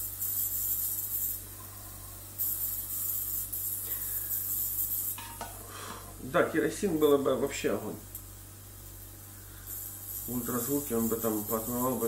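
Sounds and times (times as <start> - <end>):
ultrasonic cleaner hiss: 8.8 - 12.0.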